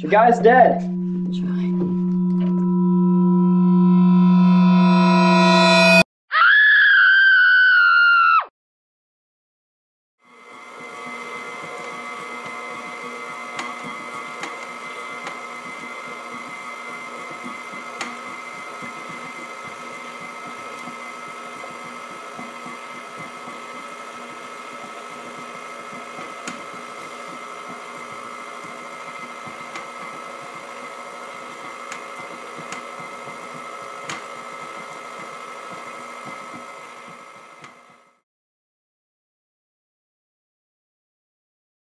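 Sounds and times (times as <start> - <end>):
stand mixer motor whine: 0.8 - 6.0, 10.3 - 38.2.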